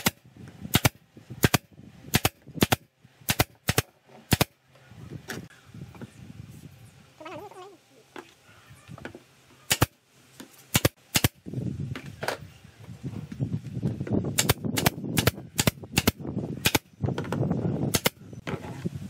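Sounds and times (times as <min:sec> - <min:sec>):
pneumatic nail gun firing: 0:00.0 - 0:04.6, 0:09.7 - 0:10.0, 0:10.7 - 0:11.4, 0:14.3 - 0:16.9, 0:17.9 - 0:18.2.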